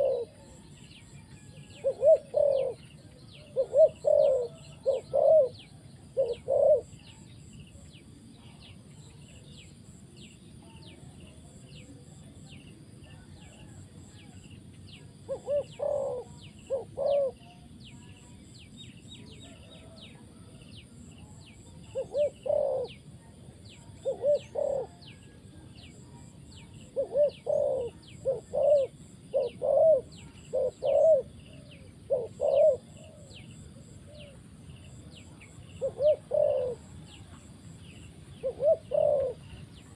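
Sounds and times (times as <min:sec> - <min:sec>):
dove cooing: 0:00.0 - 0:07.5, 0:15.0 - 0:17.8, 0:21.3 - 0:39.9.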